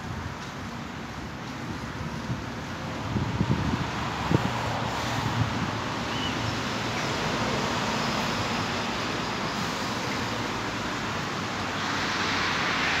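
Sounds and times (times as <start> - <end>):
wind on microphone: 1.9 - 6.0.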